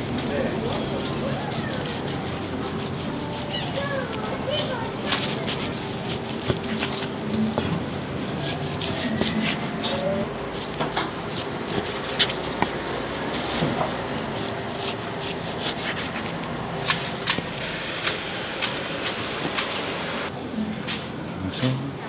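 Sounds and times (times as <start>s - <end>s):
knife slicing raw meat: 5.2s - 19.8s.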